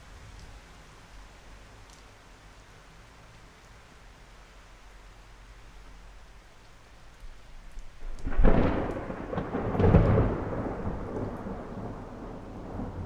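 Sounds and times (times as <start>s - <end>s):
rain falling: 0.0s - 13.0s
thunder rumbling: 8.0s - 13.0s.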